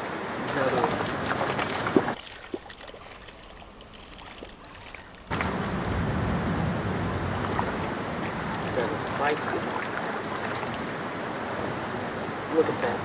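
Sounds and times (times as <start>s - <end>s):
fish thrashing and splashing: 0.0s - 5.8s, 7.3s - 11.1s.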